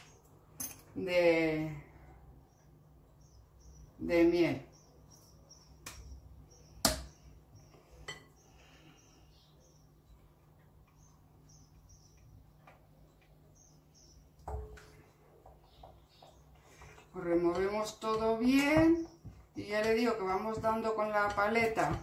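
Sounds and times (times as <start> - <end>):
stirring batter in glass bowl: 14.9 - 22.0.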